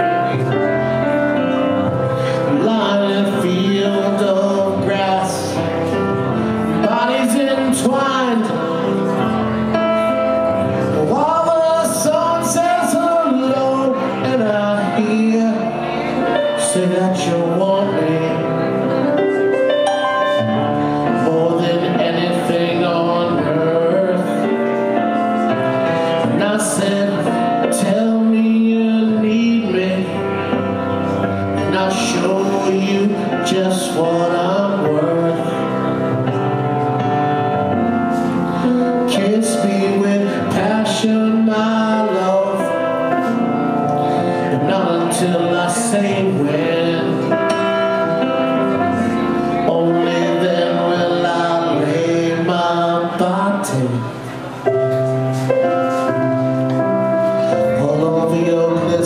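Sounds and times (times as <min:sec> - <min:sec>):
man singing into microphone: 0:00.0 - 0:54.3, 0:55.4 - 0:59.0
instrumental music: 0:00.0 - 0:59.0.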